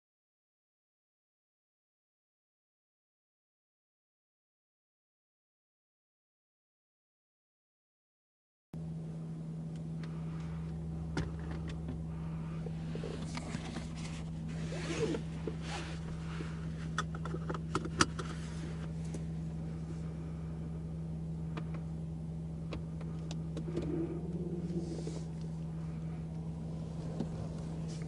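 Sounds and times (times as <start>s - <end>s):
car cabin low drone: 8.8s - 28.0s
scraping and rustling: 12.8s - 17.5s, 23.7s - 25.6s.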